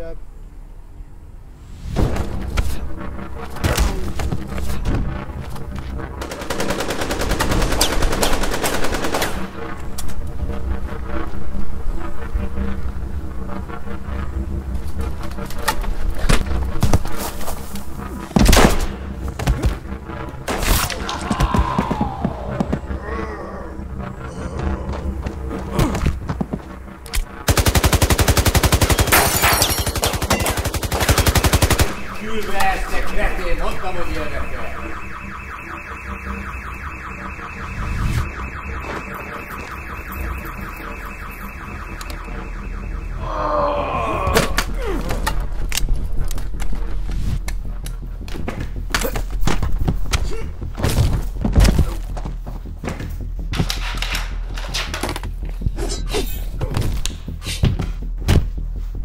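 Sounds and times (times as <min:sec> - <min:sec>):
wavering repeating tone: 0:30.0 - 0:44.2.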